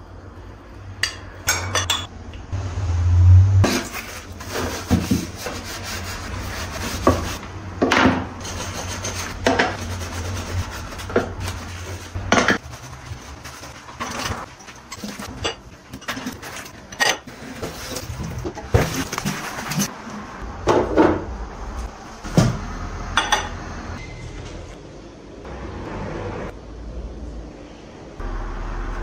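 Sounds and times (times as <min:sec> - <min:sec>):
sponge scrubbing: 0:03.6 - 0:07.4, 0:08.4 - 0:15.4.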